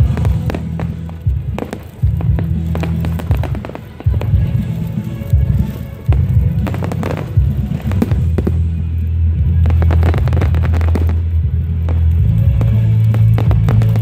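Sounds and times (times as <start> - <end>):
fireworks bangs and crackling: 0.0 - 14.0
loud music with heavy bass: 0.0 - 14.0.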